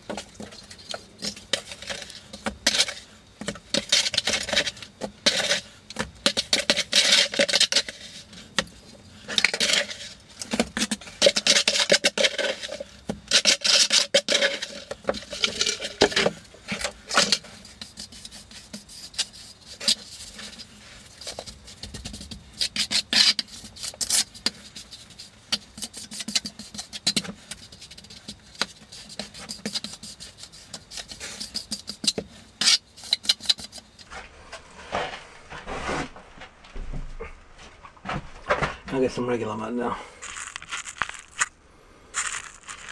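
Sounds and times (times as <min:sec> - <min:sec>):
hand trowel scraping mortar: 0:00.2 - 0:39.0, 0:40.2 - 0:41.5, 0:42.2 - 0:42.9.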